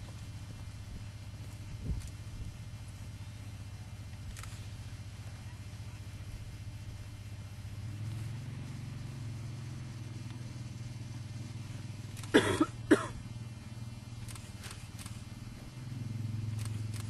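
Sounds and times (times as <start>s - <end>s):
steady low hum: 0.0s - 17.0s
person coughing: 12.4s - 13.2s.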